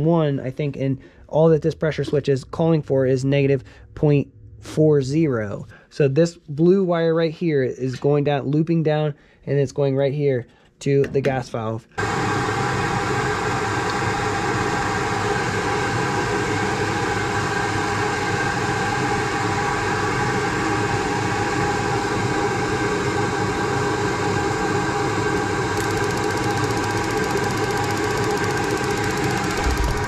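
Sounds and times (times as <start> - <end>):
furnace motor humming: 23.3 - 30.0.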